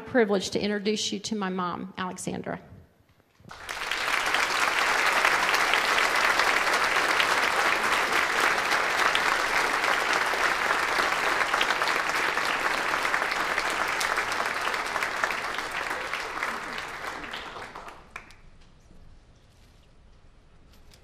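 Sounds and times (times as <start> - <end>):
audience applauding: 3.5 - 18.4.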